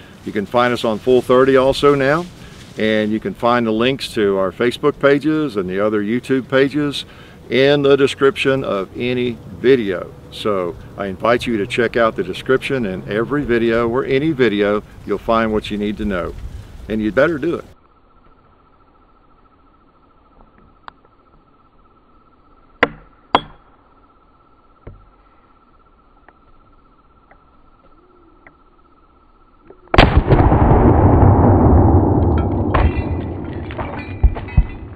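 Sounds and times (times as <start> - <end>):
loud blast with rolling echo: 30.0 - 34.6.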